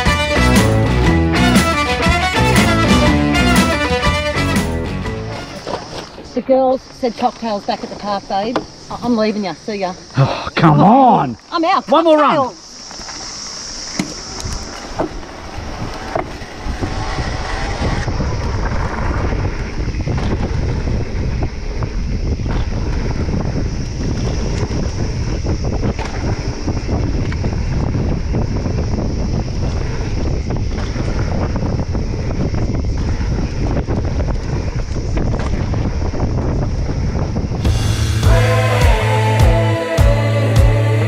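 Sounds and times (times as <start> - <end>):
wind buffeting microphone: 13.8 - 38.2
tyres rolling over dirt: 14.1 - 21.2.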